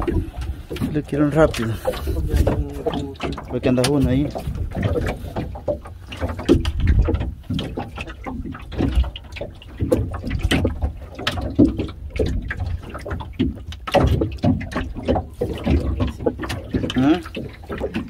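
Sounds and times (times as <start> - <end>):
boat engine rumble: 0.0 - 18.0
knocks and clatters: 0.0 - 18.0
water against the hull: 0.0 - 18.0.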